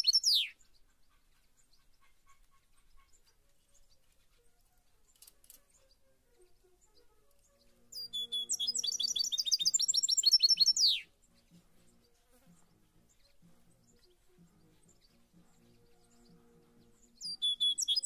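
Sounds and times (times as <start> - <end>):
songbird trill: 0.0 - 18.0.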